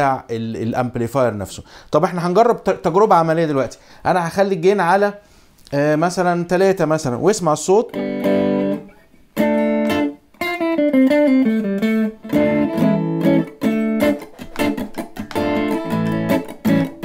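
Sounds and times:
electric guitar slightly distorted: 7.6s - 17.0s.

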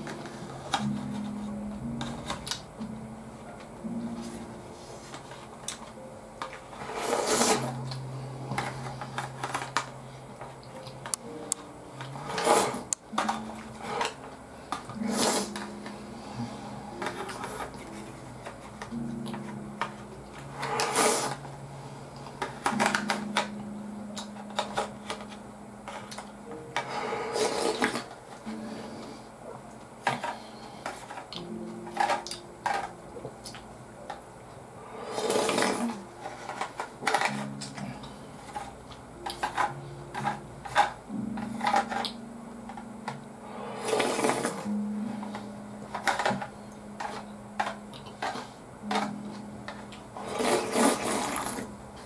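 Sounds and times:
noodles slurping: 50.2s - 51.6s.

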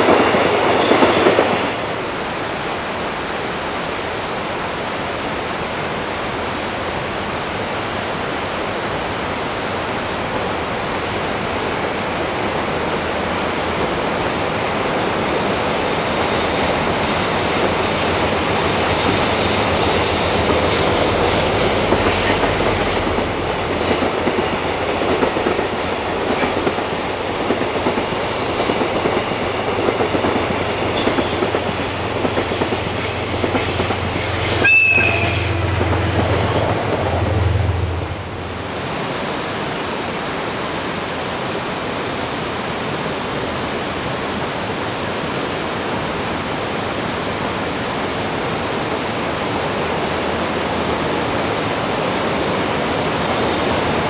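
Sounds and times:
river rushing: 0.0s - 54.0s
freight train wheels clattering: 13.6s - 37.4s
sharp wheel squeal: 34.2s - 35.6s.

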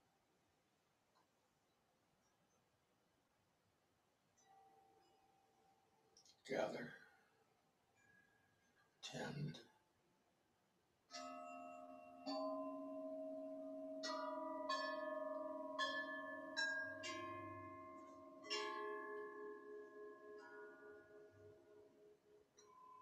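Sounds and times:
metal bells ringing: 11.2s - 21.7s.

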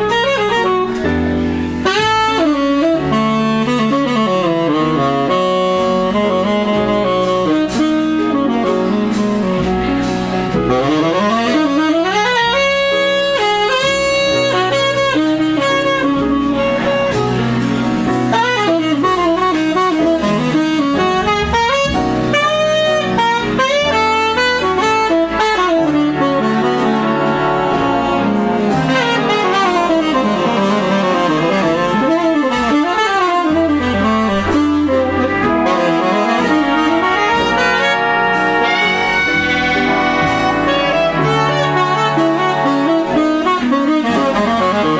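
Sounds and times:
bass line: 0.0s - 44.9s
brass playing: 0.0s - 44.9s
saxophone soloing: 0.0s - 44.9s.

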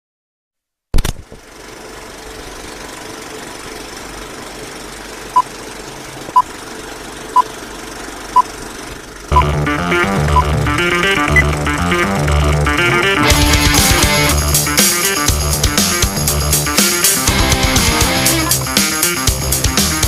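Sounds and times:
sharp pop: 0.9s - 1.3s
rock song with electric guitar: 9.4s - 20.0s.

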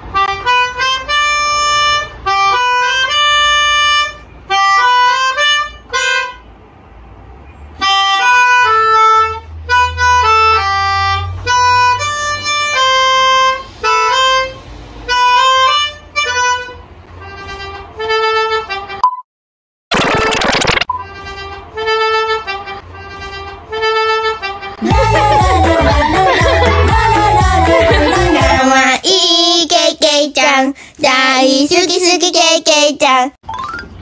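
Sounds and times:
melodica melody: 0.0s - 6.4s, 7.8s - 19.0s, 20.9s - 28.8s.

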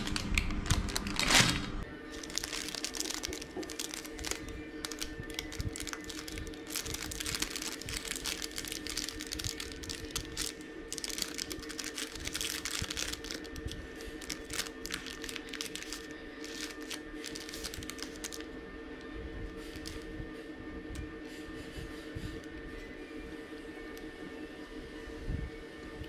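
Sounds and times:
baking paper crinkling: 0.0s - 18.5s, 19.6s - 20.1s
bread rolls torn apart: 2.2s - 18.4s.

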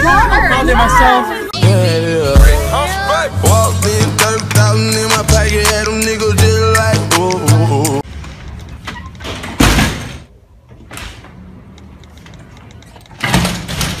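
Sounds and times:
hip-hop song: 0.1s - 8.1s.

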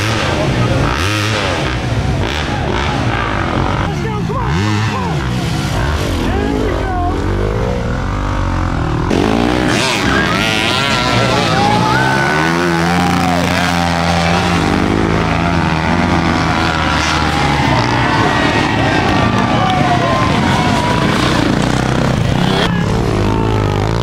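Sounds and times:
dirt bike engines revving: 0.0s - 24.0s
people shouting: 9.7s - 24.0s.

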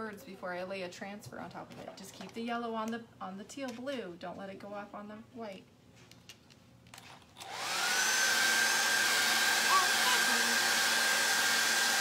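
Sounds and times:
hair dryer blowing: 7.4s - 12.0s.

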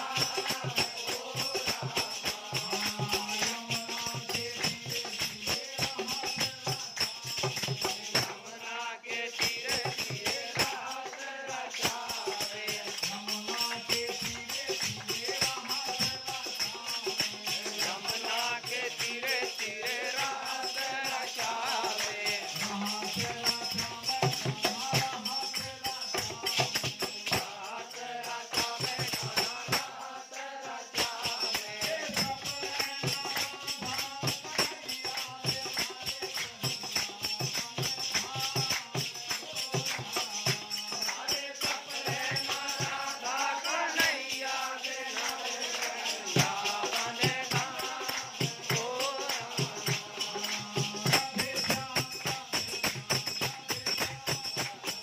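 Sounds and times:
group chanting: 0.0s - 4.6s, 8.3s - 26.5s, 27.1s - 36.3s, 37.6s - 53.0s
hand claps: 0.0s - 8.4s, 21.4s - 27.5s, 31.0s - 42.0s, 45.1s - 55.0s
jingling wooden clappers: 0.0s - 8.6s, 9.4s - 55.0s.

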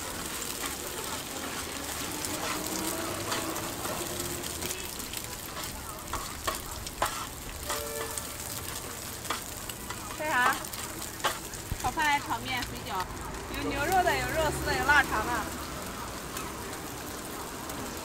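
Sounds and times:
eggs and onion sizzling in oil: 0.0s - 18.0s
metal spatula scraping a griddle: 0.1s - 12.4s.

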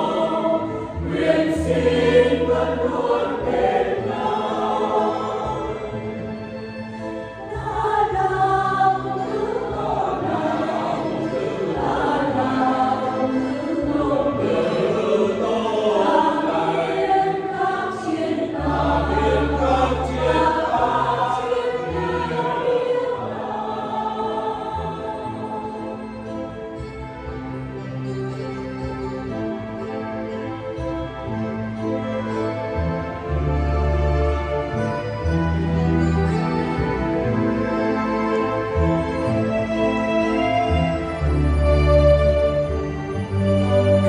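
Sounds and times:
mixed choir singing a hymn: 0.0s - 6.6s, 7.4s - 26.3s.

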